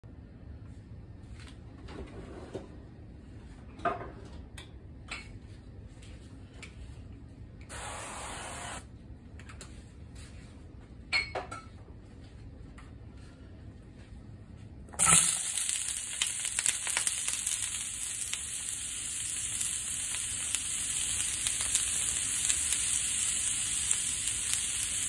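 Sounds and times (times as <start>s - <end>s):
aerosol spray hissing: 7.7s - 8.8s.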